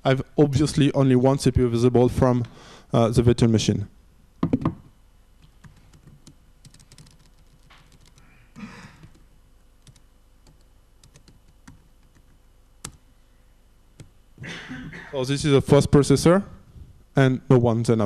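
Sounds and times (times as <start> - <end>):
laptop keyboard typing: 5.4 - 8.3, 9.0 - 9.2, 9.8 - 13.0.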